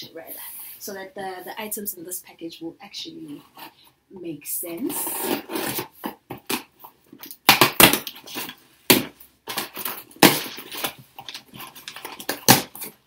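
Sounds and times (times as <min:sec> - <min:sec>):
cardboard ripping and crackling: 0:04.9 - 0:06.7, 0:07.4 - 0:13.0.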